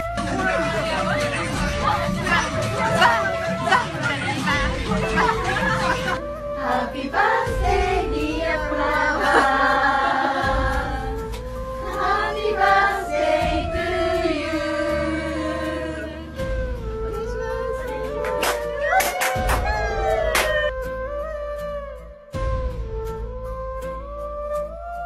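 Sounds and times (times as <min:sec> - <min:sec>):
choir-like singing: 0:00.2 - 0:16.6
low bass: 0:10.4 - 0:11.9, 0:12.7 - 0:18.2.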